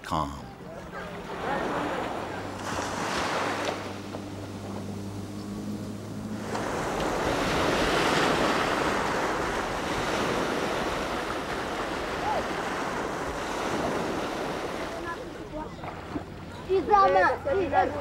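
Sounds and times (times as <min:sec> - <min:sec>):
waves washing onto rocky shore: 0:06.4 - 0:15.4.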